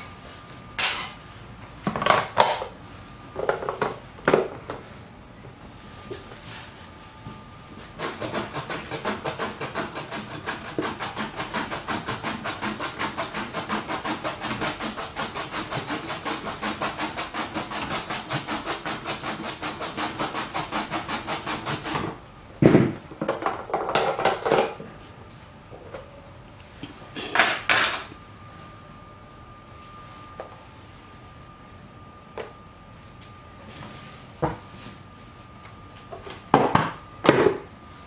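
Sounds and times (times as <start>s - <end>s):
carrot rasping on shredding blade: 8.0s - 22.1s.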